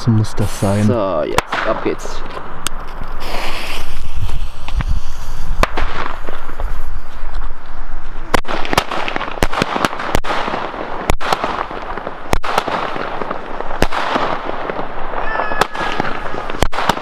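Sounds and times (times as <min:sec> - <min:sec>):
continuous hiss: 0:00.0 - 0:09.3
firework bangs: 0:00.6 - 0:17.0.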